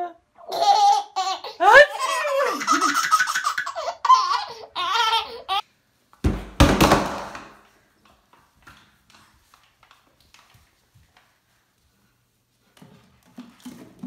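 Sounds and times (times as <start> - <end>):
baby laughing: 0.4 - 5.6
sudden thump: 6.2 - 7.6.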